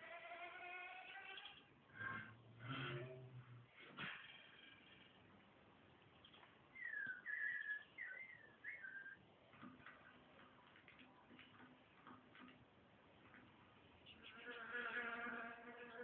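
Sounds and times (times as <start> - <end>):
faint whistled tones: 6.7 - 9.2
faint ticks and clicks: 9.5 - 14.3.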